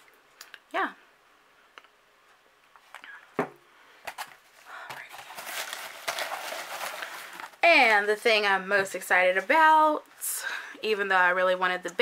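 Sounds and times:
hands rustling shredded paper: 0:04.7 - 0:08.2.

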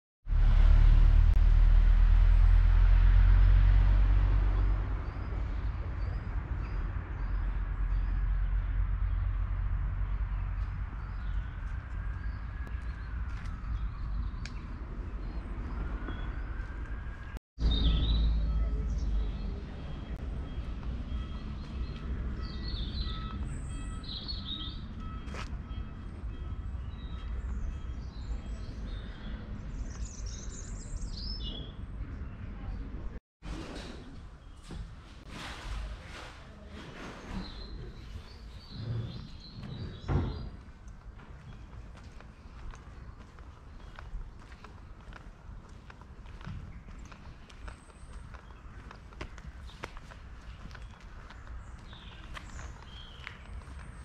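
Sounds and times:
loud low rumble: 0:00.2 - 0:11.5
bird chirping: 0:10.3 - 0:32.7.

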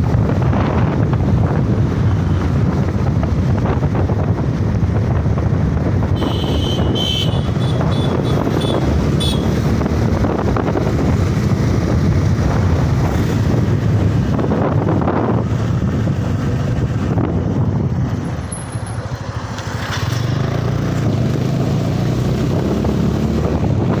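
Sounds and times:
wind rushing over microphone: 0:00.0 - 0:18.5, 0:20.2 - 0:24.0
motorcycle engine running: 0:00.0 - 0:24.0.

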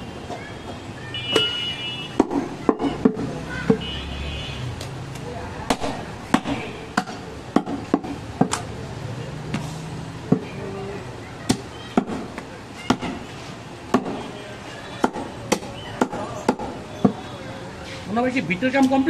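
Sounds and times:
cleaver chopping ribs on wood: 0:05.7 - 0:08.6, 0:13.9 - 0:14.2, 0:15.0 - 0:17.2.

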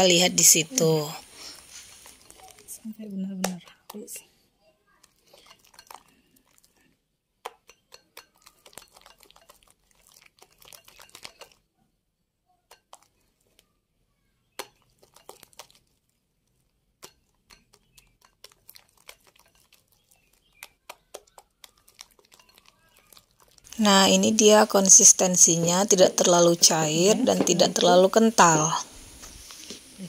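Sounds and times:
soft wet stirring: 0:01.2 - 0:29.9
whisk clicking against glass bowl: 0:05.3 - 0:06.1, 0:07.4 - 0:11.6, 0:14.6 - 0:15.8, 0:17.0 - 0:23.8.

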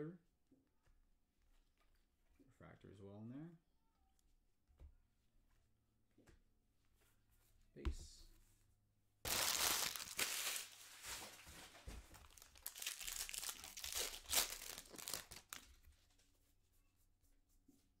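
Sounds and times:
foil wrapper crinkling: 0:09.3 - 0:15.8
foil wrapper tearing: 0:09.3 - 0:15.8.

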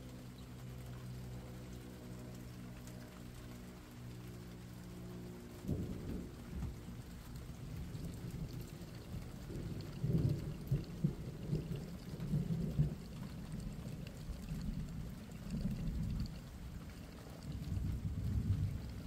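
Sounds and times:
rain falling: 0:00.0 - 0:19.0.

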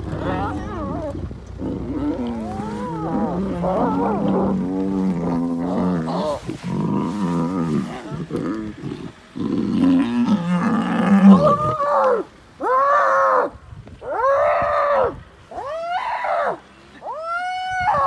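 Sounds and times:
lion growling: 0:00.0 - 0:12.0
hyena squealing: 0:00.3 - 0:04.9.

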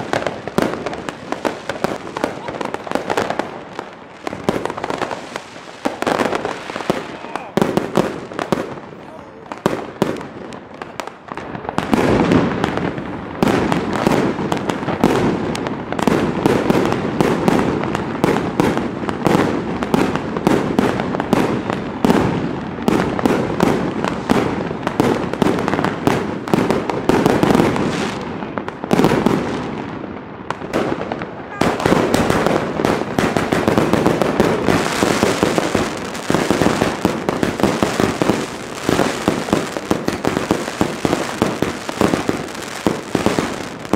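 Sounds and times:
fireworks banging and crackling: 0:00.0 - 0:43.9.

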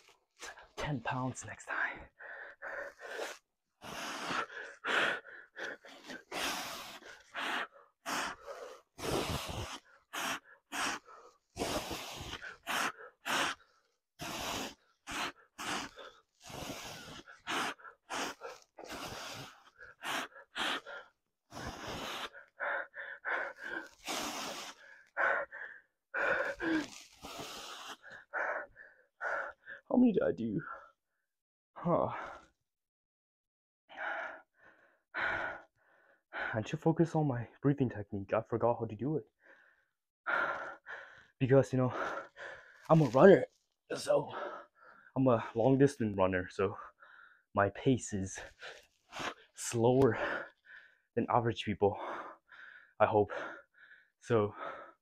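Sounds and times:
man breathing hard: 0:02.0 - 0:29.9, 0:33.9 - 0:36.6, 0:39.4 - 0:43.2, 0:44.3 - 0:45.2, 0:46.7 - 0:47.5, 0:48.4 - 0:51.1, 0:51.9 - 0:55.0.

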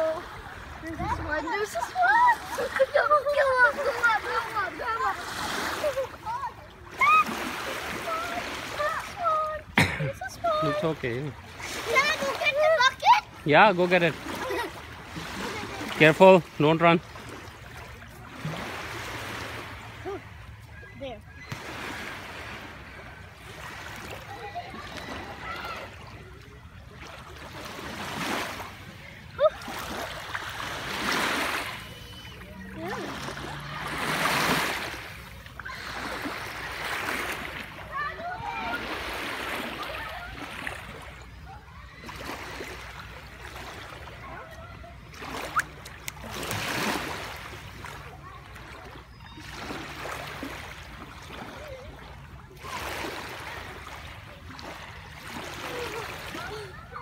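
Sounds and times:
small waves washing ashore: 0:00.0 - 0:57.0
small waves lapping on gravel shore: 0:29.5 - 0:41.1, 0:45.1 - 0:56.4.

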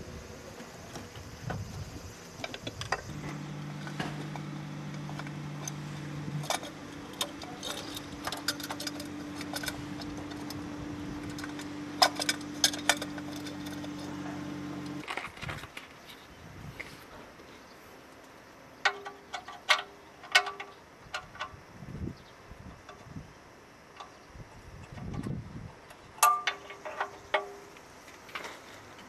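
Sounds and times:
steady low hum: 0:00.0 - 0:15.4
metallic clicks of hand in engine: 0:02.4 - 0:10.6.

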